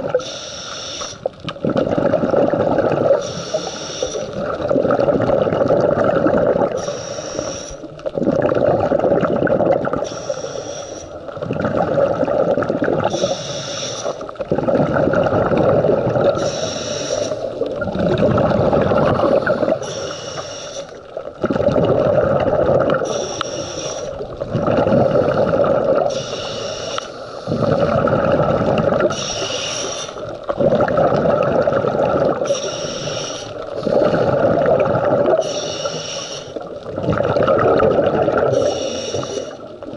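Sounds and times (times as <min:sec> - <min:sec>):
regulator inhalation hiss: 0:00.2 - 0:01.3, 0:03.2 - 0:04.4, 0:06.8 - 0:07.9, 0:10.0 - 0:11.2, 0:13.1 - 0:14.3, 0:16.4 - 0:17.6, 0:19.2 - 0:21.0, 0:23.0 - 0:24.2, 0:25.1 - 0:27.9, 0:29.1 - 0:30.3, 0:32.4 - 0:34.5, 0:35.4 - 0:36.7, 0:38.5 - 0:39.7
exhaled bubbles rushing: 0:01.2 - 0:10.4, 0:11.1 - 0:20.2, 0:20.9 - 0:26.4, 0:27.5 - 0:39.9.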